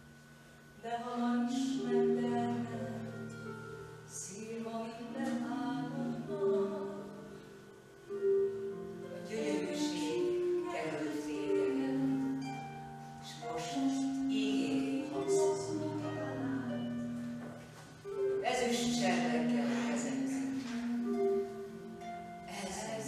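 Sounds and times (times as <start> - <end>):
slow music: 0.0 - 23.0
voices singing in harmony: 9.2 - 12.5.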